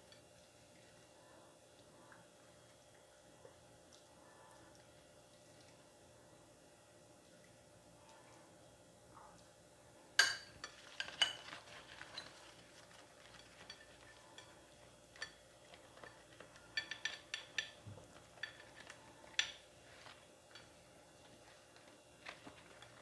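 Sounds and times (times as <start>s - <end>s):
spoon clinking against dishes: 10.2s - 12.4s, 13.2s - 17.8s
leaf crackling as folded: 10.8s - 14.0s, 21.2s - 23.0s.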